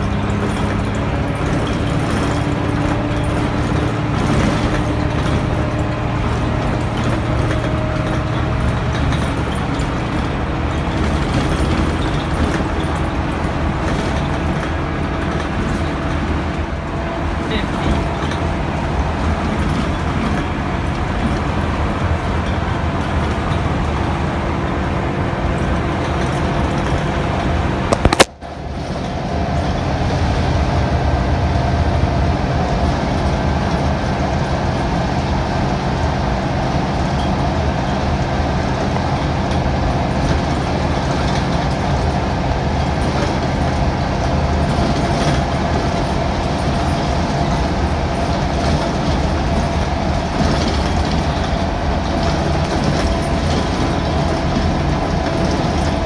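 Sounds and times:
bus diesel engine drone: 0.0 - 56.0
sharp crack: 28.0 - 28.4.

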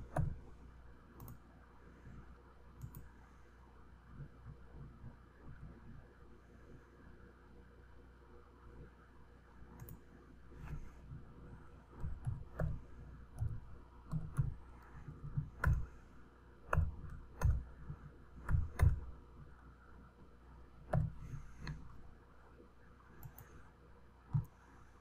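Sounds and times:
mouse clicks: 1.2 - 1.4, 2.8 - 3.1, 9.8 - 11.0, 12.0 - 16.0, 16.7 - 19.2, 20.9 - 22.0, 23.2 - 23.6
keyboard keystrokes: 12.0 - 16.0, 16.7 - 19.1.

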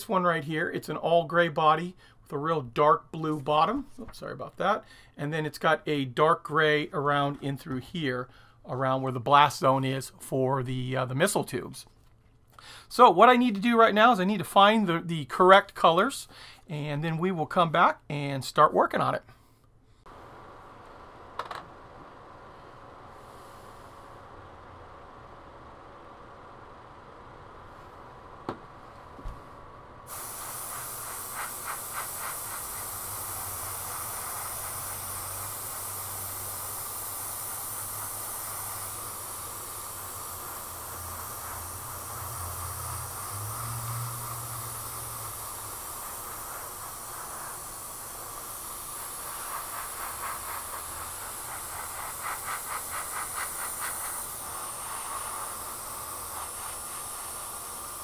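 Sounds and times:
airbrush hissing: 23.1 - 24.3, 28.8 - 58.0
airbrush clicks: 37.9 - 55.6.

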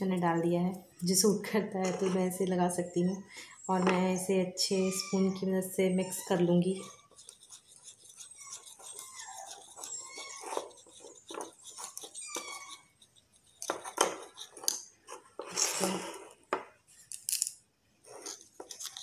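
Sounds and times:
plastic spoon scraping plastic bowl: 1.8 - 2.5, 6.1 - 17.1, 18.0 - 19.0.

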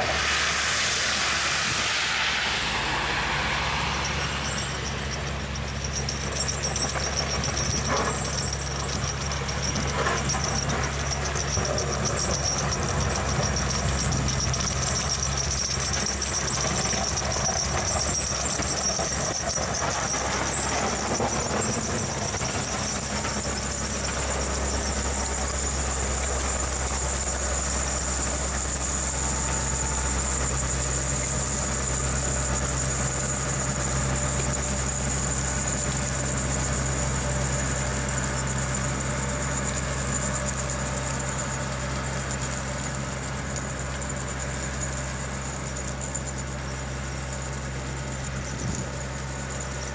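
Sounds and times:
high-pitched whine: 0.0 - 47.4
diesel engine running: 0.0 - 49.9.

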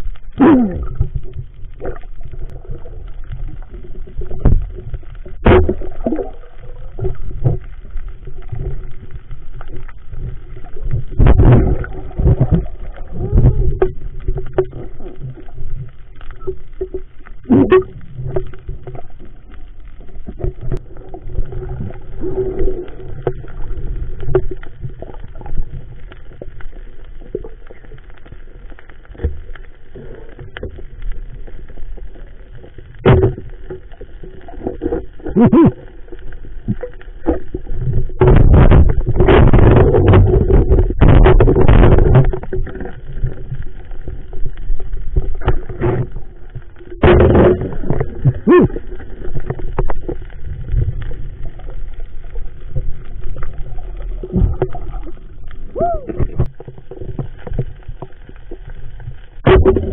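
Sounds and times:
underwater water rumble: 0.0 - 59.9
underwater knocks and thuds: 0.5 - 27.5, 32.9 - 35.4, 36.6 - 59.9.

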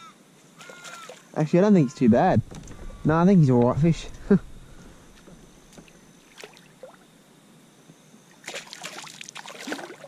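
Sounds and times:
fish thrashing and splashing: 8.4 - 10.0.

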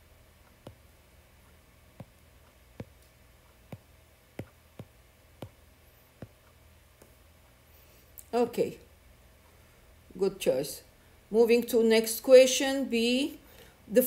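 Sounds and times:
fingertip taps on touchscreen: 0.5 - 0.8, 2.0 - 3.1, 3.7 - 5.6, 6.2 - 6.5.

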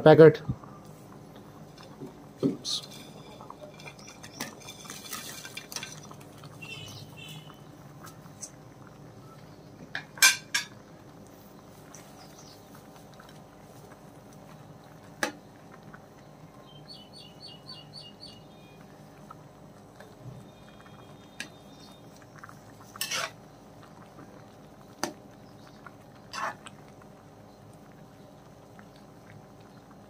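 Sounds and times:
dishes clinking: 2.4 - 6.2, 10.0 - 10.8
metal spatula scraping pot: 2.6 - 6.2, 22.9 - 23.4, 26.3 - 26.6.

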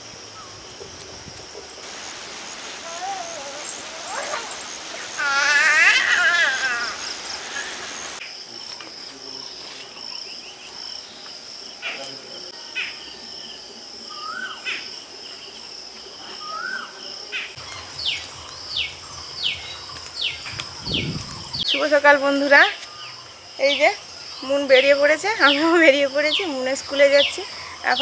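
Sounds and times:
birds chirping: 0.0 - 28.0
insects trilling: 0.0 - 28.0
short rising bird calls: 2.7 - 8.2.

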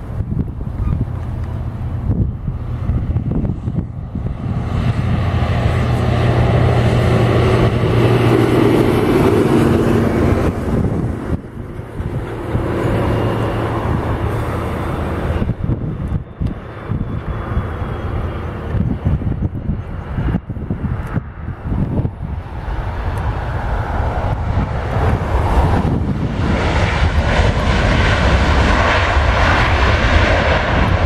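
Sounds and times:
jet engines rumbling: 0.0 - 31.0.

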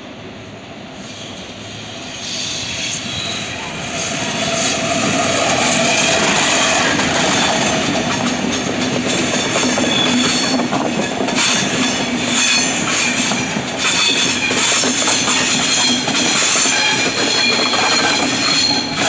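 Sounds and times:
high wheel squeals: 2.1 - 4.7, 11.4 - 19.0
train wheels clattering on rails: 2.2 - 19.0.

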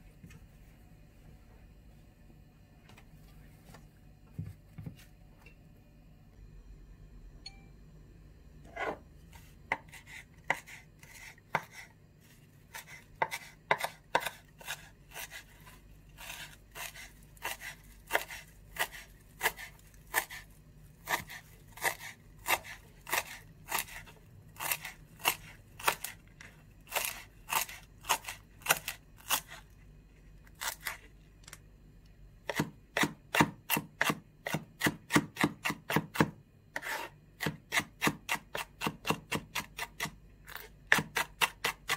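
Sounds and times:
knife chopping on wooden board: 9.7 - 11.9, 12.7 - 20.4, 21.0 - 26.2, 26.9 - 29.6, 32.5 - 41.9.

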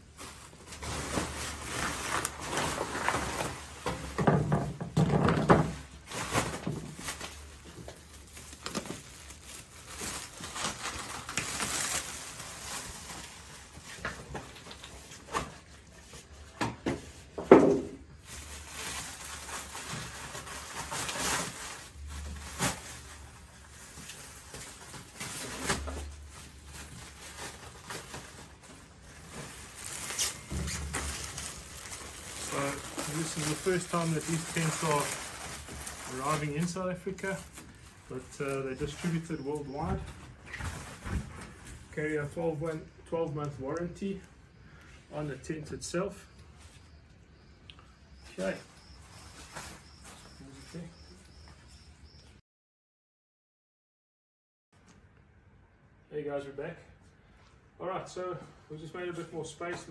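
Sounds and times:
plastic film crinkling: 0.0 - 4.2, 5.6 - 16.4, 18.1 - 41.7.

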